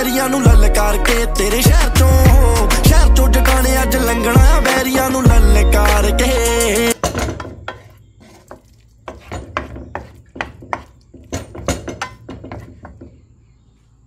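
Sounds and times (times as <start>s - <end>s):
utensil scraping frying pan: 7.0s - 13.3s.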